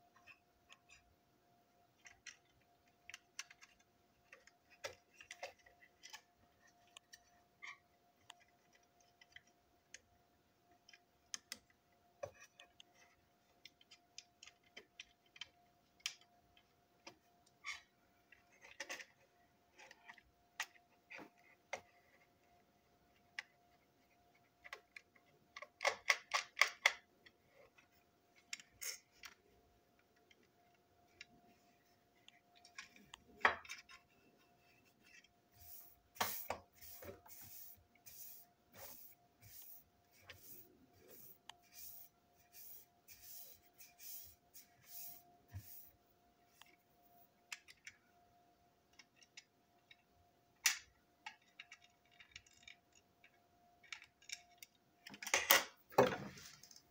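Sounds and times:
small plastic clicks and taps: 24.6s - 27.8s.

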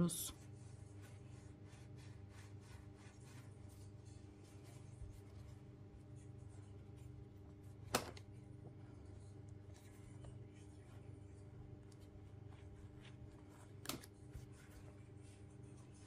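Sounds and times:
steady low hum: 0.0s - 16.0s
hands rubbing yarn toy: 0.3s - 6.5s.

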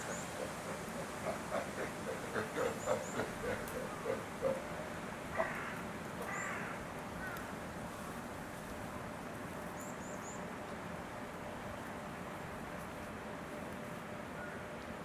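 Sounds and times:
harsh animal calls: 0.0s - 4.7s, 5.3s - 6.6s.

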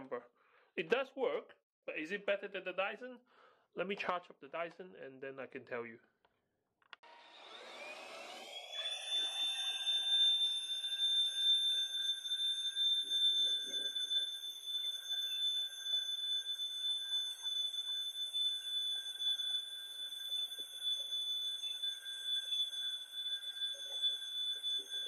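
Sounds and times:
vacuum cleaner motor whine: 7.0s - 16.1s.

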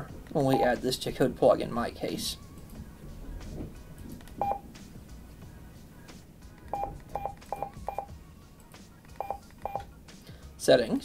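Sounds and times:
radio keypad beeps: 6.7s - 8.1s, 9.2s - 9.9s.

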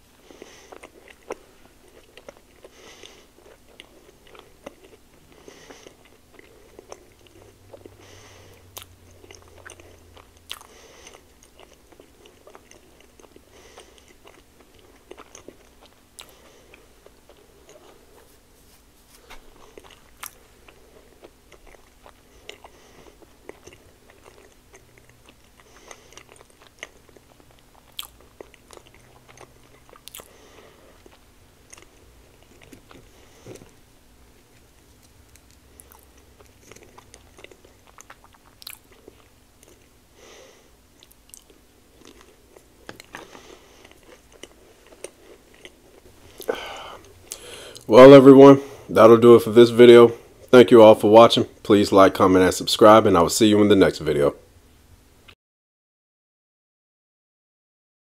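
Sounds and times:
close chewing: 0.2s - 18.4s, 19.3s - 33.8s, 34.4s - 47.9s.

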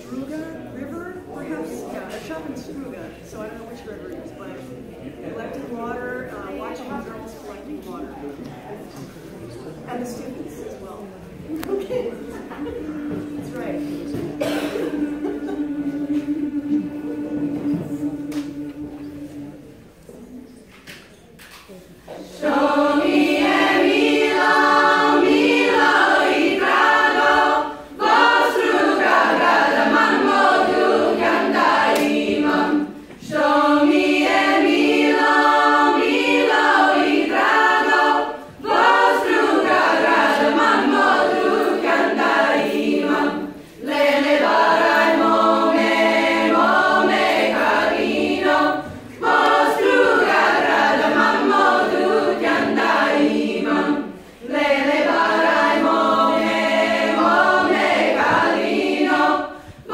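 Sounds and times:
women's choir singing a cappella: 0.0s - 9.2s, 10.0s - 59.9s.

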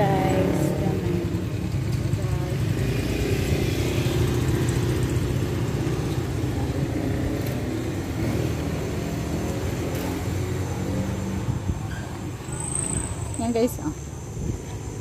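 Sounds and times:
wind buffeting microphone: 10.6s - 15.0s.

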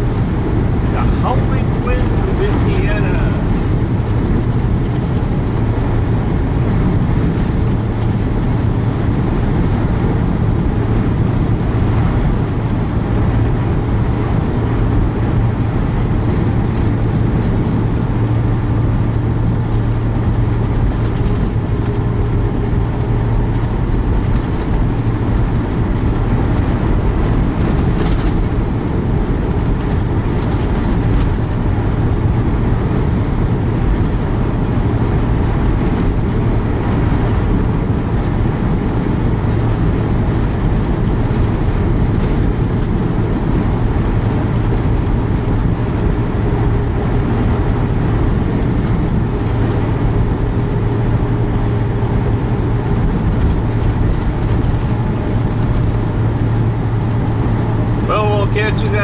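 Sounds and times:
truck engine and road noise: 0.0s - 59.0s.

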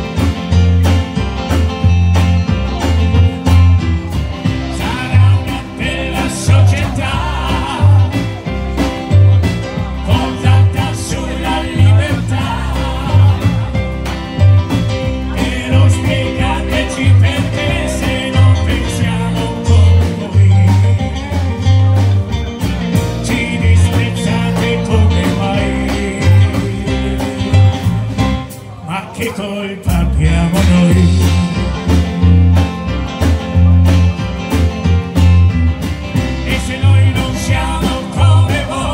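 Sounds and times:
bass line: 0.0s - 38.9s
drum kit: 0.0s - 38.9s
electric guitar: 0.0s - 38.9s
electric keyboard: 0.0s - 38.9s
man singing into a microphone: 4.4s - 8.9s, 9.8s - 13.9s, 15.1s - 22.0s, 23.0s - 28.1s, 28.8s - 32.3s, 36.4s - 38.9s.

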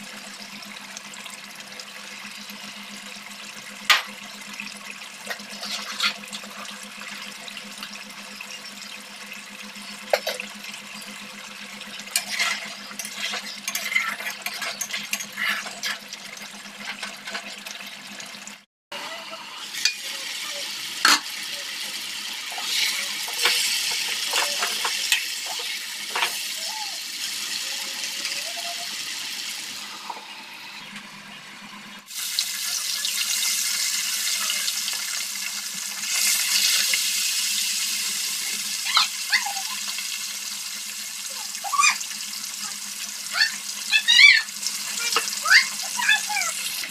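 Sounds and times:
fish sizzling in oil: 0.0s - 31.2s, 32.0s - 46.9s
metal spatula scraping pot: 5.3s - 6.8s, 12.1s - 17.8s, 22.5s - 26.4s.

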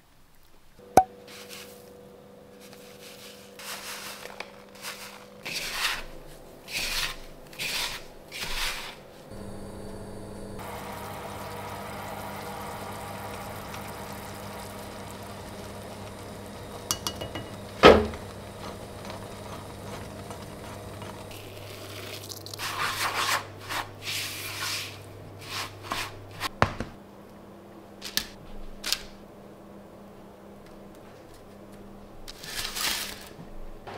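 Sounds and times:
low hum: 9.3s - 21.4s
syrup bubbling and sizzling: 9.4s - 23.0s
spoon clinking on pan: 16.9s - 17.6s
spoon stirring and scraping: 18.3s - 26.1s.

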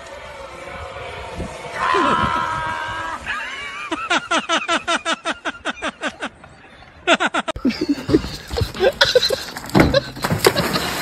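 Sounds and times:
rapid high-pitched laughter: 3.1s - 6.4s.

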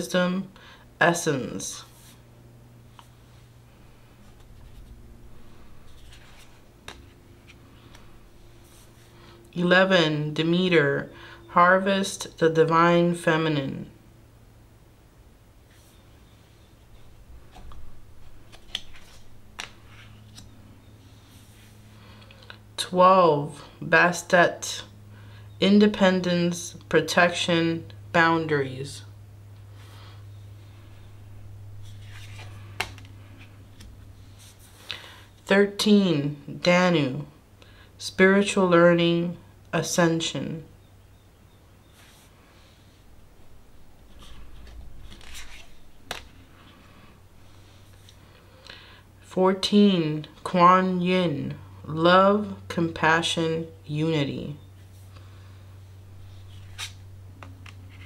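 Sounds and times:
cards rustling: 4.2s - 9.2s, 16.9s - 21.8s, 31.8s - 35.0s, 44.0s - 48.2s, 56.2s - 58.0s.

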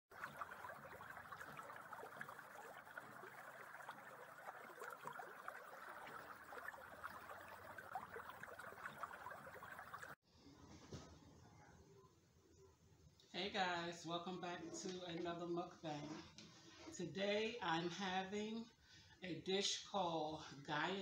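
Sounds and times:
stream trickling over rocks: 0.1s - 10.2s.

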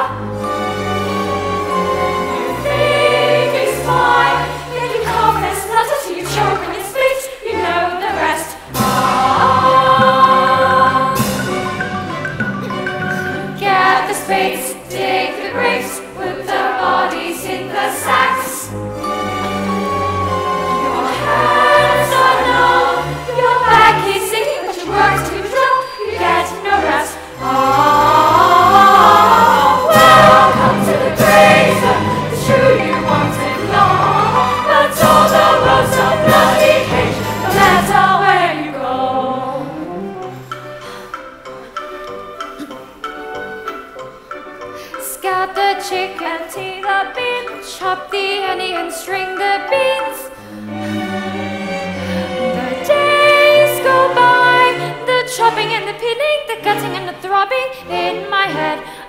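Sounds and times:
girls' chorus singing: 1.7s - 11.6s, 13.5s - 18.7s, 20.6s - 39.8s, 45.2s - 58.9s
band accompaniment: 8.6s - 15.8s, 18.1s - 44.5s.

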